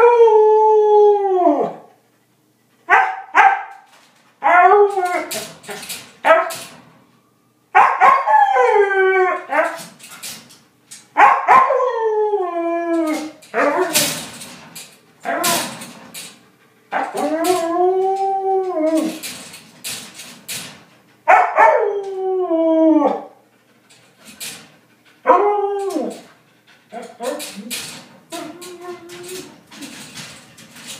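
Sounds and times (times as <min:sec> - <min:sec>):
dog howling: 0:00.0 - 0:01.9, 0:11.3 - 0:14.0, 0:16.9 - 0:19.2, 0:21.3 - 0:23.4, 0:25.2 - 0:26.3.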